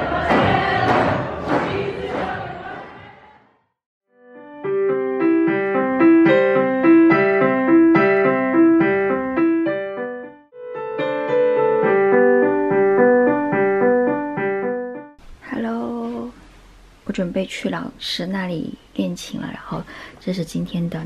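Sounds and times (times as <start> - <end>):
digital piano melody: 4.2 - 15.2.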